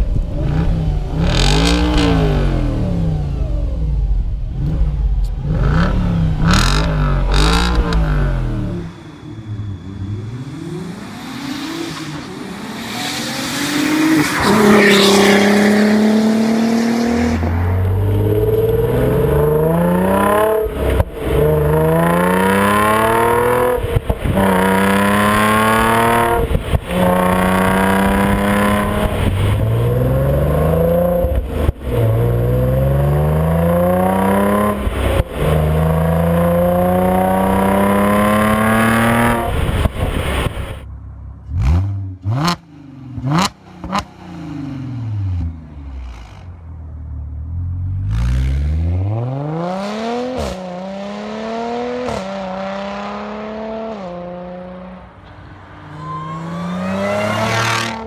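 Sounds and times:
car exhaust revving through gears: 0:00.1 - 0:40.8, 0:41.4 - 0:46.6
car engine passing by: 0:04.6 - 0:46.6, 0:47.4 - 0:58.0.

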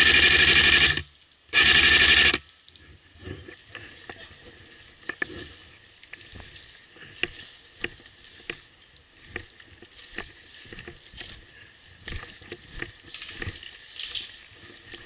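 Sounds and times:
rustle of leaves and gear: 0:01.0 - 0:01.6, 0:02.2 - 0:15.0
footsteps crunching leaf litter: 0:03.9 - 0:15.0.

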